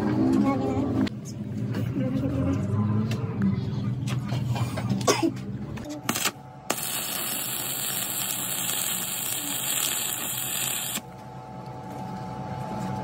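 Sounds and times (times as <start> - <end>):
arc welding hiss: 6.1 - 11.0.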